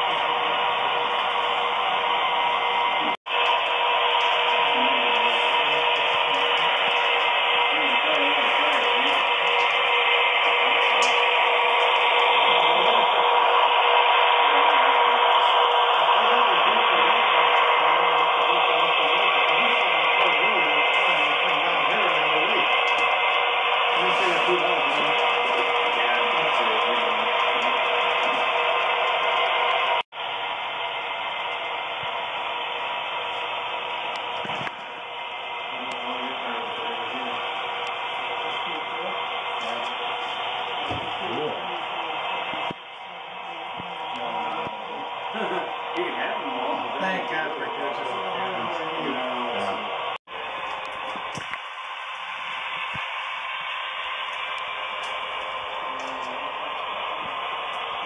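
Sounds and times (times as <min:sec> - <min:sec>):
model train running on track: 0:00.0 - 0:58.0.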